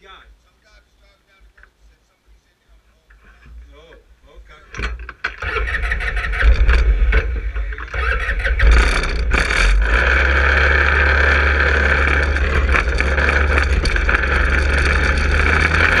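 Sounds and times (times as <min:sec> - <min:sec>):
go-kart engine revving: 0:05.1 - 0:16.0.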